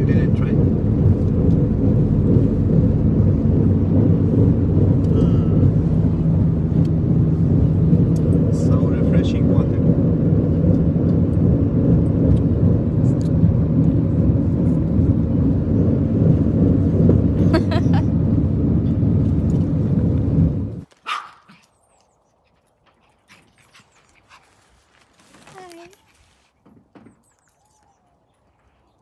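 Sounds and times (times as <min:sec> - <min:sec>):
car engine and road rumble: 0:00.0 - 0:21.3
dog barking: 0:21.0 - 0:21.6.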